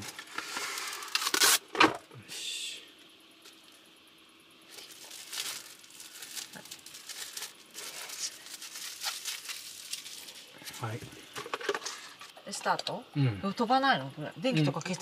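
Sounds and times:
plastic bag crinkling: 4.7 - 12.3.

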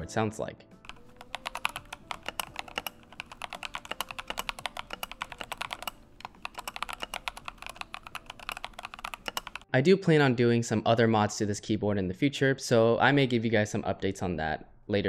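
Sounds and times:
fast typing on mechanical keyboard: 0.9 - 9.7.

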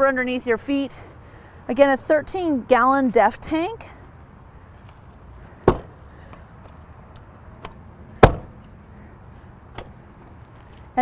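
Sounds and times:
storage doors thumping: 5.6 - 6.0, 8.2 - 8.6.

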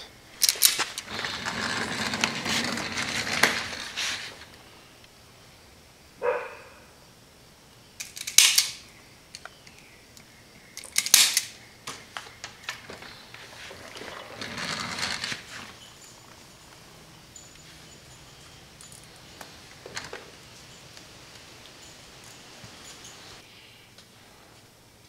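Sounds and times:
zip ties rustling: 0.4 - 4.6.

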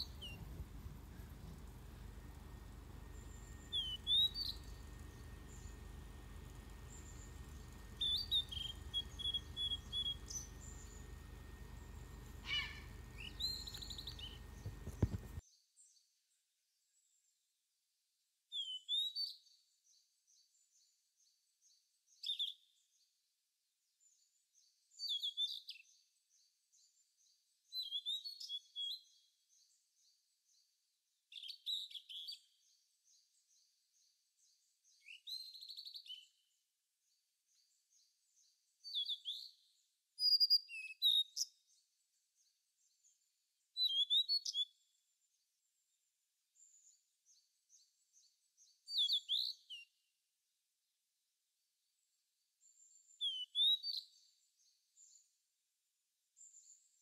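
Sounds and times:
low background noise: 0.0 - 15.5
bird whistles and trills: 3.7 - 4.7, 8.0 - 10.7, 12.4 - 15.2, 40.2 - 41.5, 43.8 - 44.7, 48.9 - 49.9, 53.2 - 54.0.

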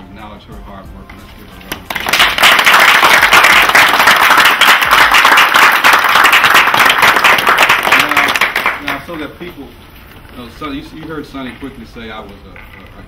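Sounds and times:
people applauding: 1.7 - 9.1.

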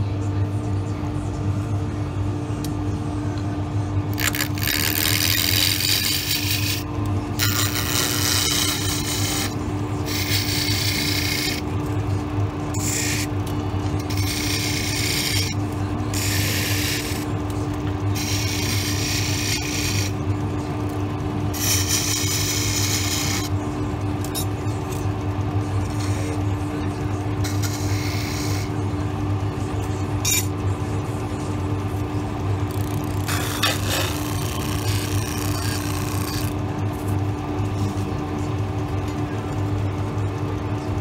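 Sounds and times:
wood lathe humming: 4.1 - 20.3, 21.5 - 23.6
turning tool hissing on wood: 7.4 - 11.6.

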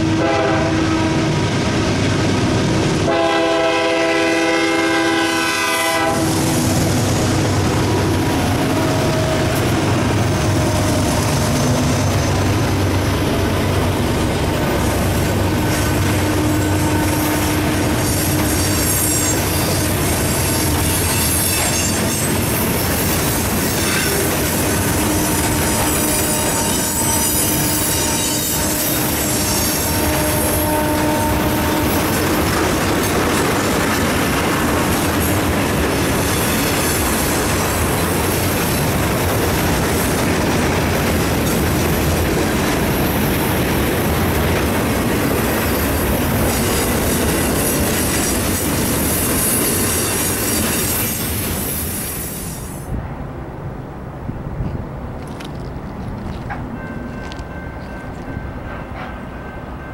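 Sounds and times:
steel wheels clattering on rail: 5.7 - 52.9, 54.6 - 59.9
metallic squeal: 25.6 - 31.0.

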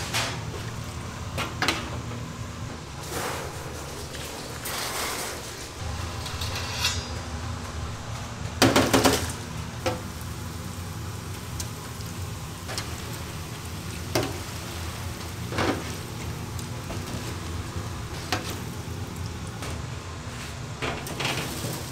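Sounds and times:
oil sizzling in a fryer: 0.0 - 21.9
low hum: 5.8 - 12.6.

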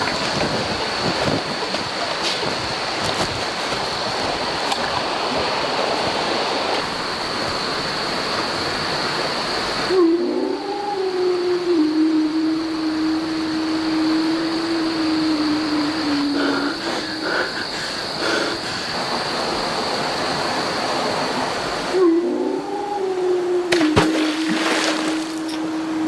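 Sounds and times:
low held tone: 22.0 - 26.0.

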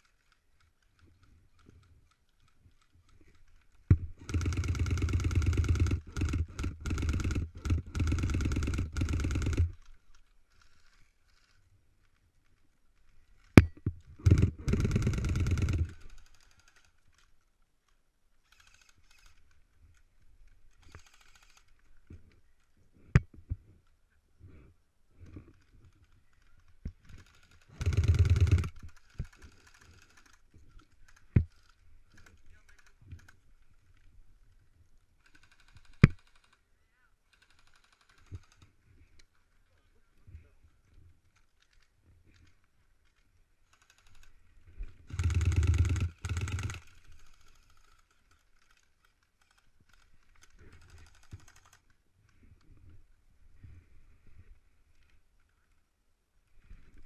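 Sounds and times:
airsoft rifle firing full auto: 4.0 - 9.9, 14.2 - 16.8, 27.2 - 30.4, 45.1 - 48.1.

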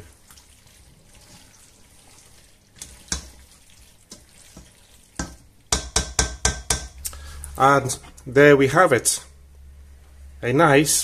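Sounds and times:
spoon stirring pasta in pot: 0.1 - 7.0
spoon knocking against pot: 5.2 - 7.0.

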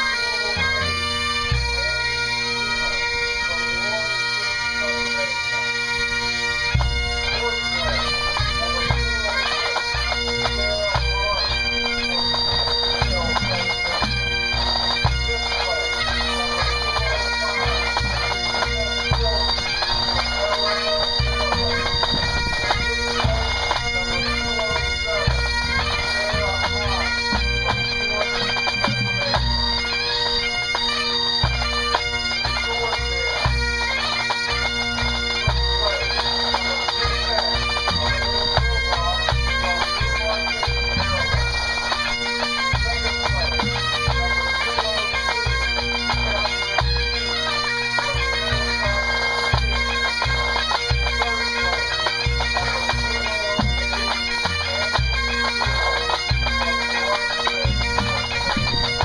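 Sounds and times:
bagpipes with drones: 0.0 - 59.0
drum corps playing: 6.7 - 29.8, 35.0 - 45.1, 48.0 - 59.0.

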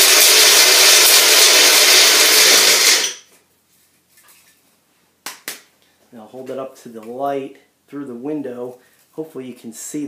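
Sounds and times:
blender whirring: 0.0 - 3.2
faint handling sounds: 3.3 - 5.1.

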